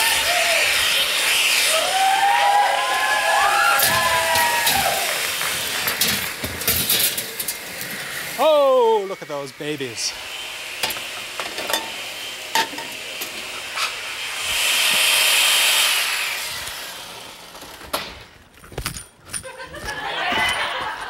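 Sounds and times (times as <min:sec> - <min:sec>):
blender whining: 0:00.0 - 0:17.8
metal tray clattering: 0:05.9 - 0:07.6.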